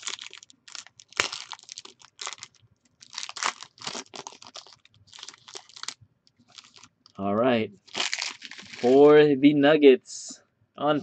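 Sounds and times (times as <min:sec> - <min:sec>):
card pack wrapper tearing and crinkling: 0:00.0 - 0:07.2, 0:07.8 - 0:09.1.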